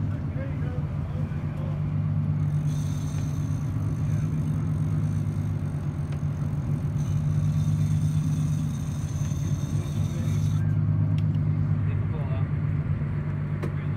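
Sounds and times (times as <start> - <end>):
boat engine running at low speed: 0.0 - 13.9.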